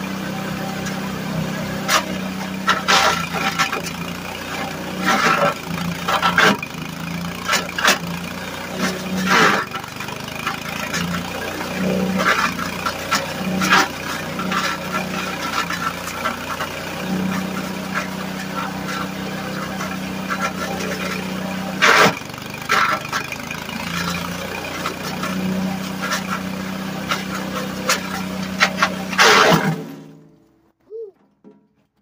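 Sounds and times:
small engine running: 0:00.0 - 0:30.2.

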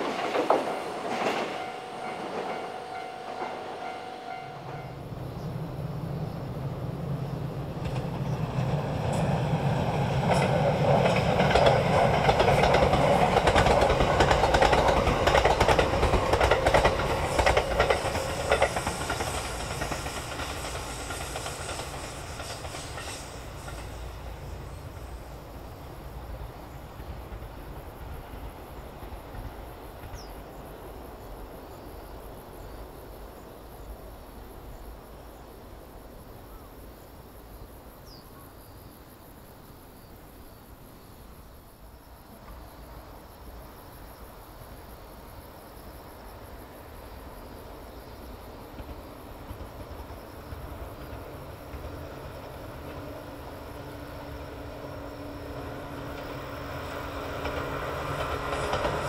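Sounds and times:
insects chirping: 0:00.0 - 0:59.0
train approaching: 0:00.0 - 0:59.0.

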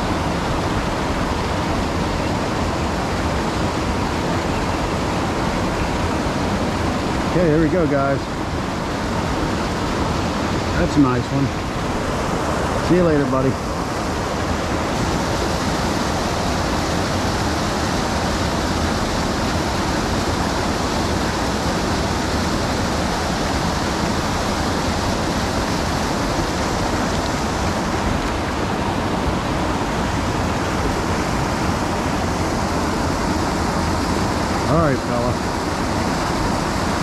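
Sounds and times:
creek water rushing: 0:00.0 - 0:37.0.

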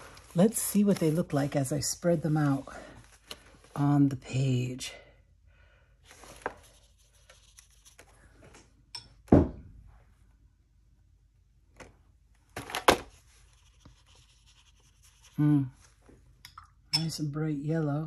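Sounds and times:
brush scrubbing on paint and paper: 0:13.4 - 0:15.5.

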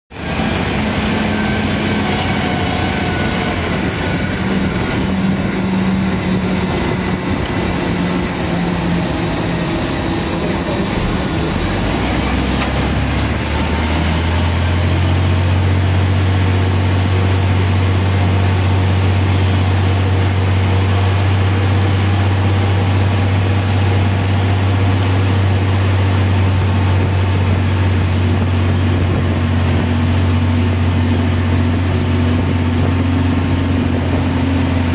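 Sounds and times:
tow tractor engine under load: 0:00.1 - 0:34.9
tyres rolling on taxiway: 0:00.1 - 0:34.9.

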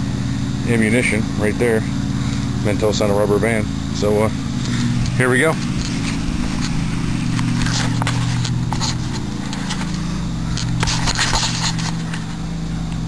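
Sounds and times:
low hum: 0:00.0 - 0:13.0
camera handling scrapes and knocks: 0:05.6 - 0:12.3.

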